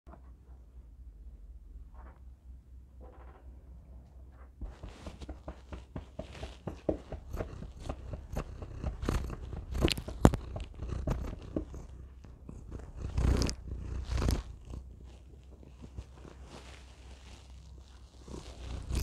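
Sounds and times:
cat purring: 4.6s - 19.0s
fur rubbing on microphone: 4.6s - 19.0s.

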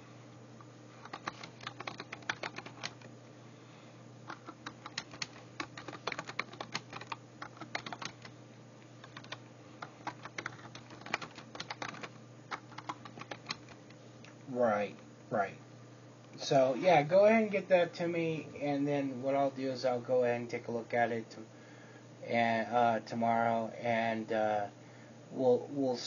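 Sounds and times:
typing on computer keyboard: 1.0s - 3.1s, 4.3s - 8.3s, 9.0s - 13.8s.

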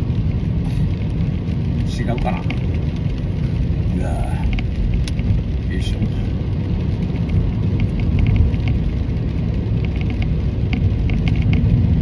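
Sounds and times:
car road and engine rumble: 0.0s - 12.0s
faint ticks: 9.8s - 11.7s.

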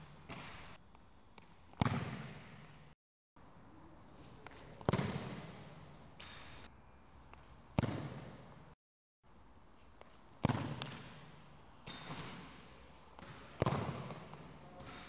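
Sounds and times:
football kicked with echo: 1.8s - 2.6s, 4.8s - 5.7s, 7.8s - 8.4s, 10.4s - 11.2s, 13.2s - 15.0s.

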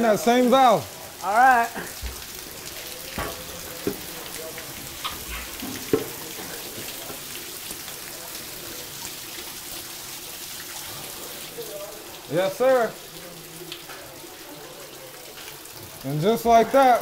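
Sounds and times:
water spraying from pipes: 0.0s - 17.0s
knocks and splashes in water: 2.0s - 7.3s.

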